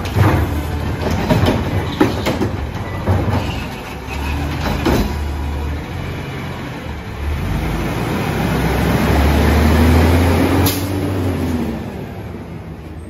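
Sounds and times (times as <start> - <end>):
heavy truck engine rumbling: 0.0 - 13.0.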